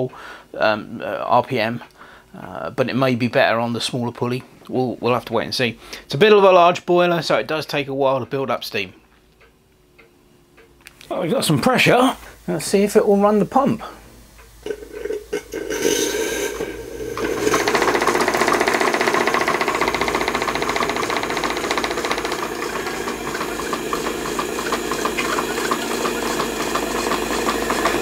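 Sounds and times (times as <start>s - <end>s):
steam hissing: 14.7s - 28.0s
steam engine running: 15.6s - 28.0s.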